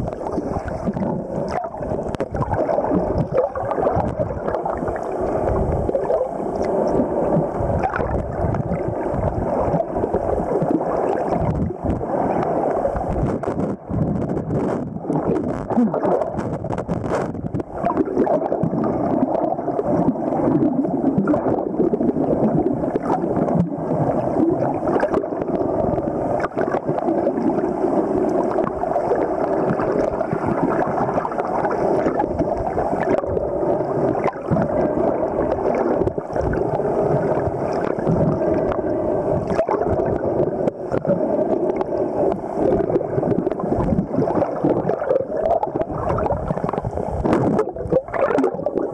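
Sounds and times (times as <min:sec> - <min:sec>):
underwater water rushing: 0:00.0 - 0:48.9.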